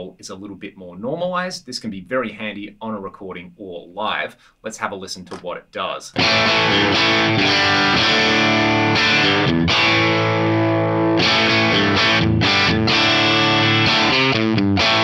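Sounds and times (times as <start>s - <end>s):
overdriven electric guitar chords: 6.2s - 15.0s.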